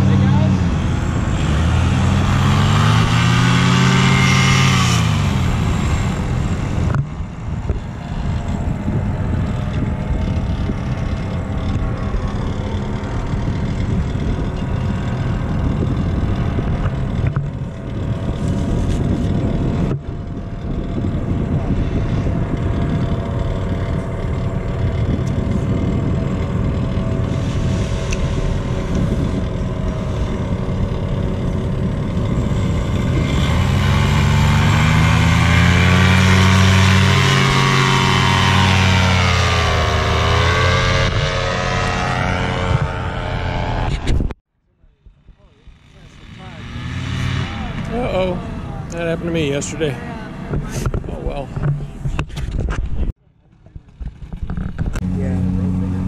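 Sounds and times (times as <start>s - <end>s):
paramotor engines running: 0.0s - 52.3s, 53.2s - 56.0s
faint engine whine: 0.0s - 56.0s.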